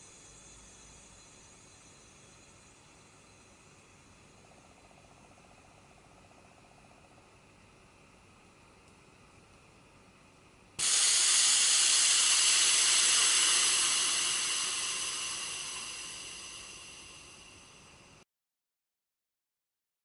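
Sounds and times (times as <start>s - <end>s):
compressed air hissing: 10.8s - 18.1s.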